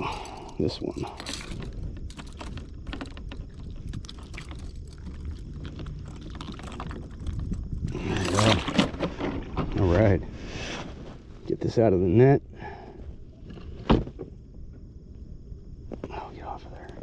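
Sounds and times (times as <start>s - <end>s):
small gear clicking and rattling: 0.0s - 9.1s.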